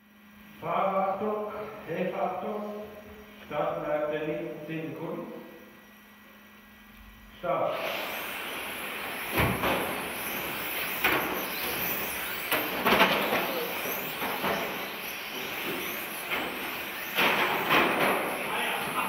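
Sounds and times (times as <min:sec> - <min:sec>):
electric model cars racing: 0:07.6 - 0:19.0.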